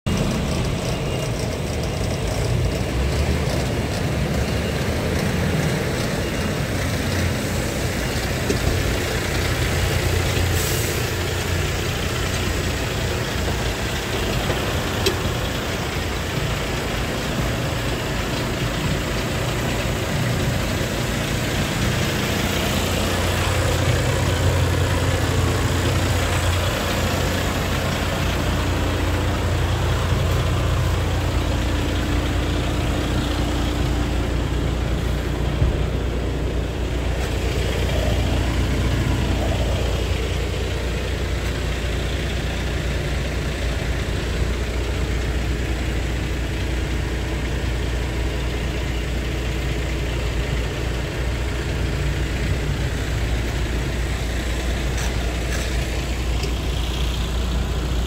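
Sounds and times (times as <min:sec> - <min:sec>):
diesel truck engine idling: 0:00.0 - 0:58.0.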